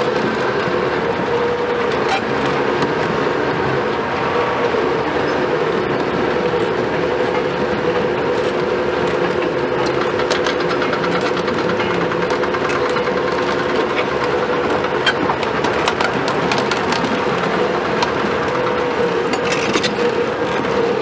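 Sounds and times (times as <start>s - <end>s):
diesel engine whine under load: 0.0s - 21.0s
crawler track links clanking: 4.6s - 21.0s.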